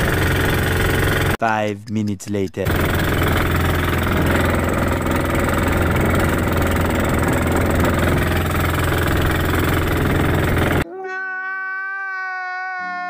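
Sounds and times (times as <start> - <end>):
boat engine droning: 0.0 - 1.4, 2.6 - 10.8.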